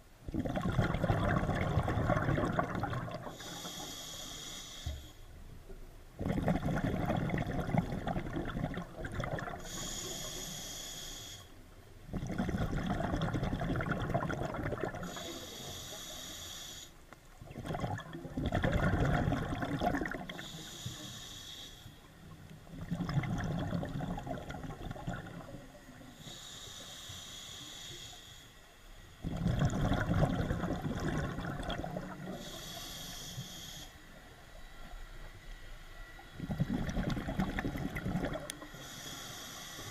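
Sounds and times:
exhaust bubbles bubbling: 0.3 - 3.4, 6.2 - 9.6, 12.1 - 15.1, 17.4 - 20.4, 22.6 - 25.7, 29.2 - 32.4, 36.4 - 38.7
regulator inhale hiss: 3.2 - 5.4, 9.5 - 11.7, 15.0 - 17.1, 20.2 - 22.5, 25.4 - 29.2, 32.0 - 34.9, 38.4 - 39.9.

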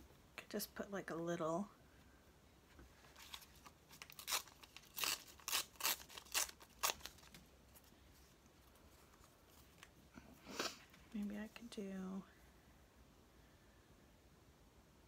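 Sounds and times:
magazine paper tearing: 3.2 - 7.4.

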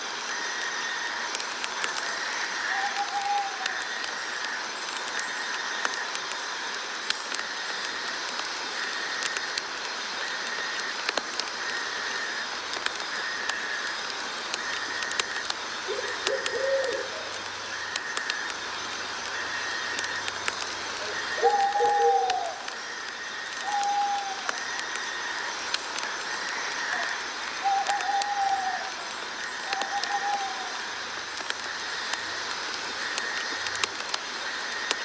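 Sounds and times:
steady hiss: 0.0 - 35.0
bird call: 21.0 - 22.8.

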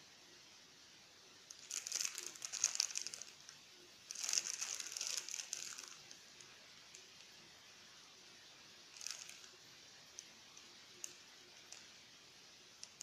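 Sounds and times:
plastic wrapper crinkling: 1.5 - 3.5, 4.1 - 6.2, 9.0 - 9.6.

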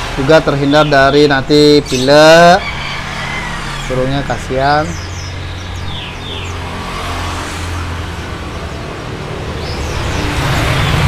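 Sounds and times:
low hum of traffic: 0.0 - 11.0.

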